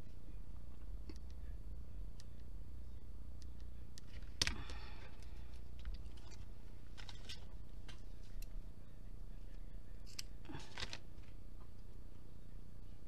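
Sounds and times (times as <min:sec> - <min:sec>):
paper rustling: 0:04.1 - 0:08.4, 0:10.1 - 0:11.4.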